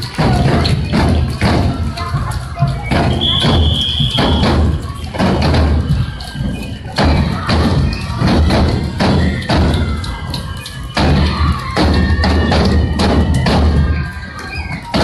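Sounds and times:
clacking percussion: 0.0 - 15.0
taiko drums beating: 0.0 - 15.0
faint flute tones: 2.6 - 5.0.

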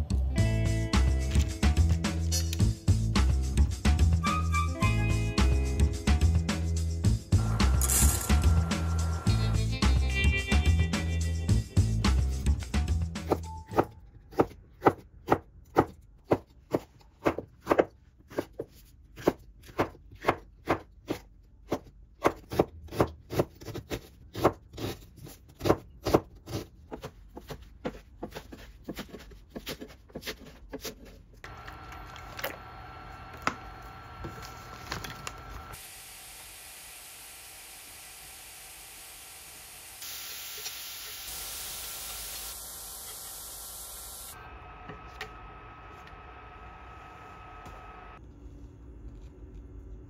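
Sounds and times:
steady hum: 7.3 - 9.8, 31.5 - 48.2
steady hiss: 35.8 - 44.4.

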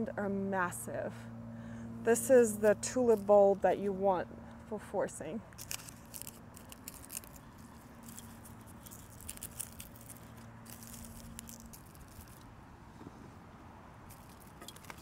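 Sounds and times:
rustling of hands in soil: 5.6 - 12.4.

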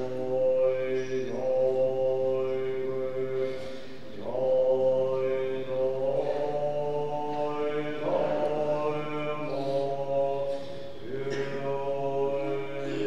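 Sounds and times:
monk chanting: 0.0 - 13.0.

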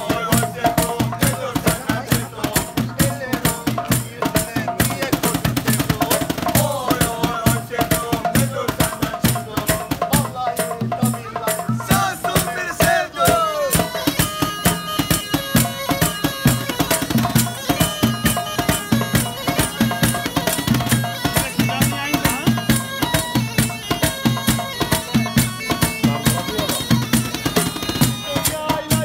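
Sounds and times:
hand drums beat: 0.0 - 29.0
bagpipe melody with drone: 13.6 - 29.0.

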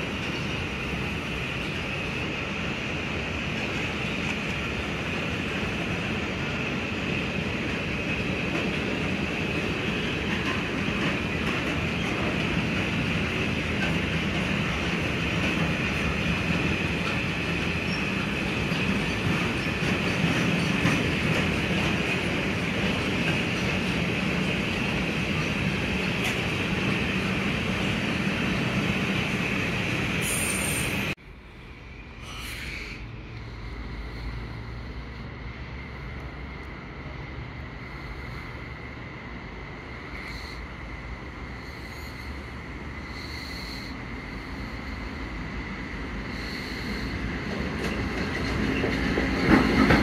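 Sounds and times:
freight train rumbling past: 0.0 - 50.0
high wheel squeal: 30.2 - 31.2.

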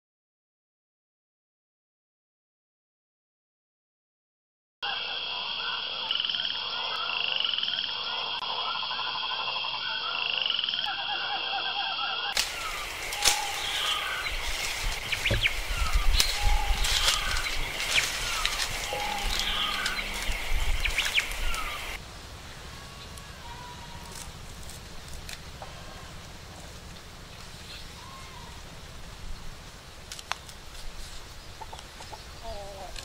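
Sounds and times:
frogs croaking and trilling: 4.8 - 24.3, 31.4 - 33.0
short chirping calls: 12.2 - 22.0
dry palm fronds rustling: 12.3 - 32.0.

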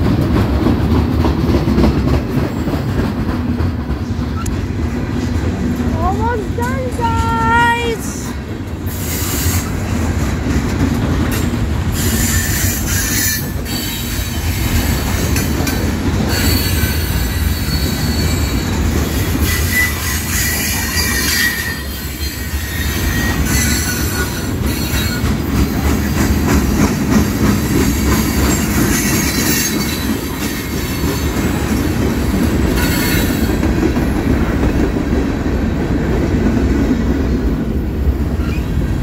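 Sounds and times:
clacks over rail joints: 0.0 - 7.5, 8.3 - 21.8, 23.0 - 37.2
train wheels rumbling on rail: 0.0 - 39.0
high wheel squeal: 16.3 - 25.3.

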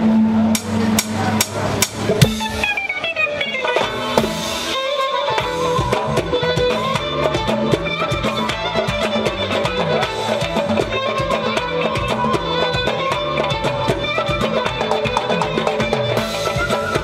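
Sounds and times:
frame drums slapping: 1.0 - 2.8
melody instrument playing: 2.1 - 17.0.

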